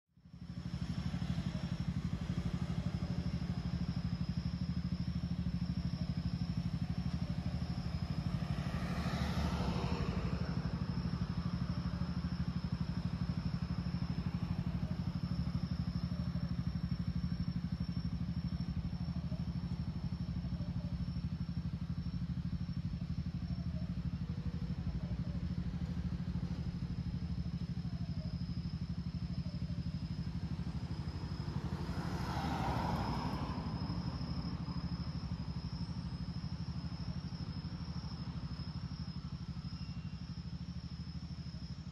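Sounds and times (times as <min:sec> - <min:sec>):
city traffic rumble: 0:00.2 - 0:41.9
vehicle passing close: 0:06.2 - 0:16.0, 0:29.9 - 0:38.6.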